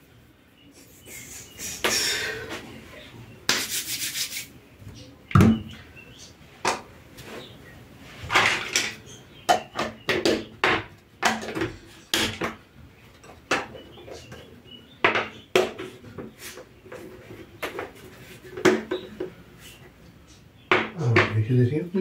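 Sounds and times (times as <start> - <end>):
dishes knocking and clinking: 8.3 - 12.6, 15.0 - 15.9, 17.6 - 19.3, 20.7 - 21.4.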